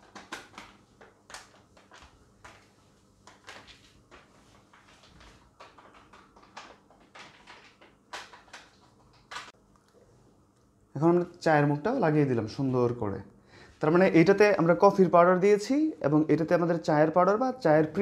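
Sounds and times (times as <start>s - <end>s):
packet crinkling and rustling: 0.0s - 9.6s.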